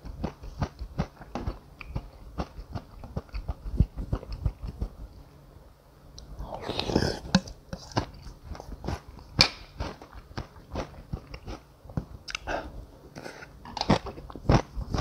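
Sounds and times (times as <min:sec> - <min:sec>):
person chewing noodles: 0:00.0 - 0:04.9, 0:06.4 - 0:12.5, 0:13.7 - 0:15.0
slurping noodles and broth: 0:06.4 - 0:08.1.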